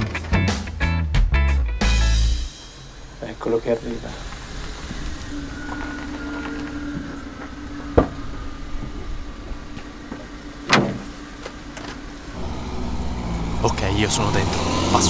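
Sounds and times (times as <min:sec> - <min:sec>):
truck engine hum: 0:00.0 - 0:15.0
faint high whine: 0:02.7 - 0:13.0
loud thump: 0:10.7 - 0:11.1.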